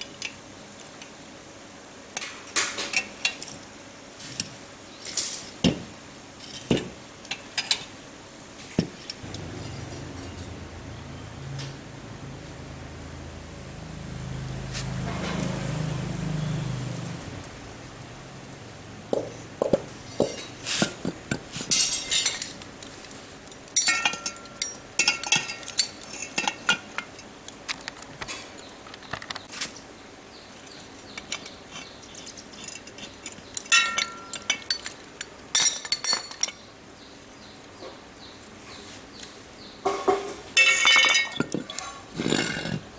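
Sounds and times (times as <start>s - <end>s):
metal tools clinking and knocking: 6.4s - 7.9s, 8.8s - 10.5s, 19.1s - 22.7s, 23.5s - 27.3s, 31.1s - 36.6s, 39.9s - 42.8s.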